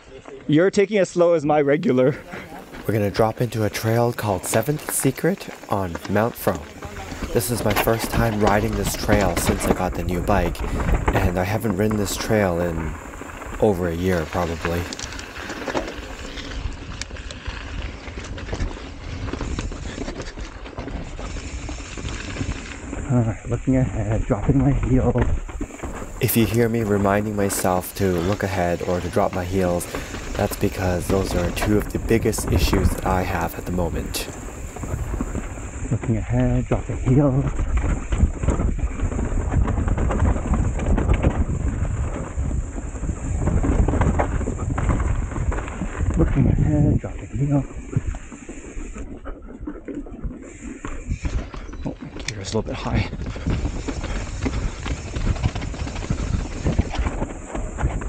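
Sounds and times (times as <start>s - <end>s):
tyres rumbling on dirt trail: 0.0s - 58.0s
bike clicks and rattles: 2.0s - 58.0s
wind on microphone: 2.0s - 58.0s.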